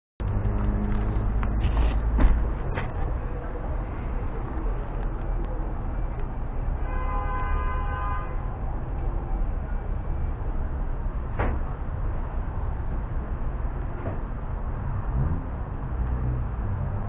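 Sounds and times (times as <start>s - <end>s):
street noise rumble: 0.2s - 17.0s
horn sounding: 6.8s - 8.6s.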